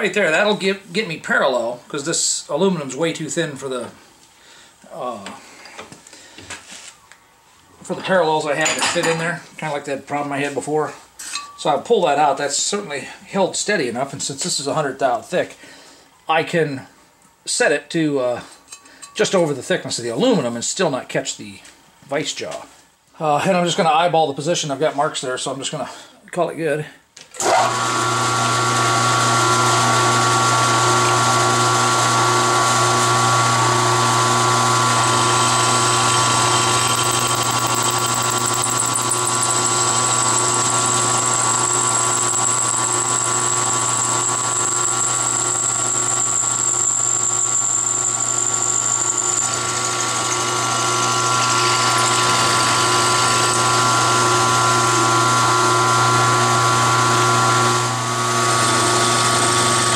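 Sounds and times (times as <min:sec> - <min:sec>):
milling machine motor hum: 0:27.5 - 0:59.9.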